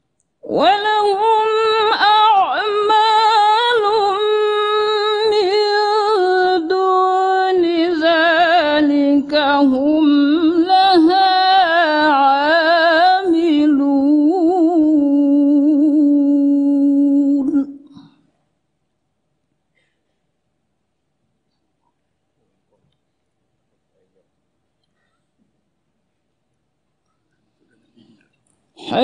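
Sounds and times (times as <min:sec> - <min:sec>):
woman reciting melodically: 0:00.4 - 0:18.2, 0:28.7 - 0:29.0.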